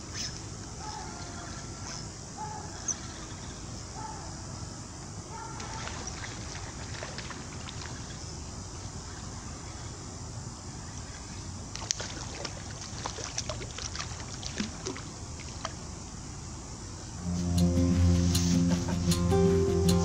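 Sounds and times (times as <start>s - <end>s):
steady low rush: 17.2s - 20.0s.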